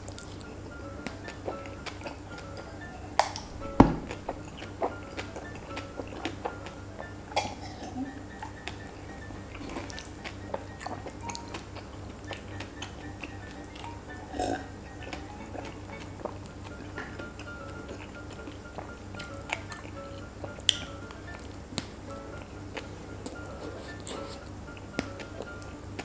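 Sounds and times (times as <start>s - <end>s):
background music: 0.0s - 26.0s
wet chewing and mouth clicks: 0.0s - 26.0s
burp: 14.3s - 14.7s.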